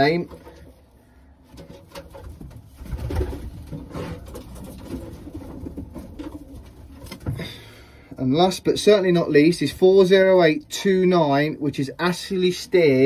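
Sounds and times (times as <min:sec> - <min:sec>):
low bumps of handling: 0:00.0 - 0:07.5.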